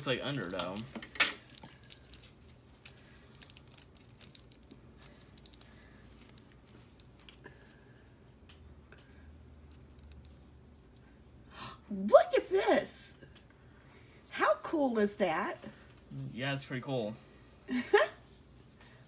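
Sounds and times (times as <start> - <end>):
plastic figure clicks and rustles: 0.3 - 1.7.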